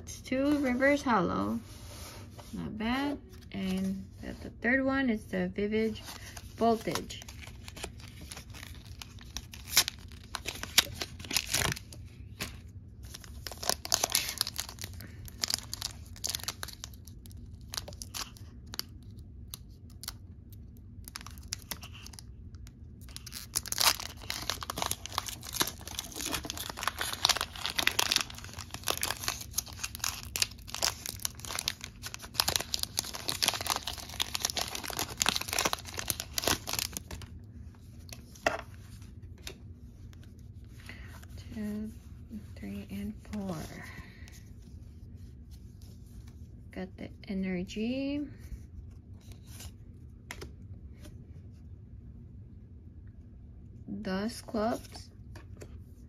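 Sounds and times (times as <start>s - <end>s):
foil wrapper crinkling and tearing: 6.1s - 37.3s.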